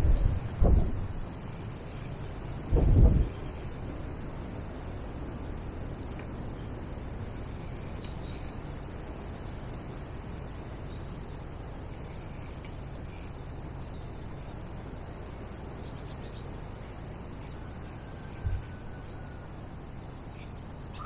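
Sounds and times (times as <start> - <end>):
low rushing background noise: 0.0 - 21.0
faint bird chirps: 6.6 - 9.2, 15.6 - 21.0.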